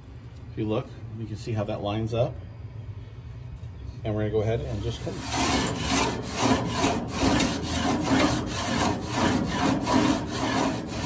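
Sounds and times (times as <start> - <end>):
wooden scraper on metal grill grate: 4.7 - 11.0.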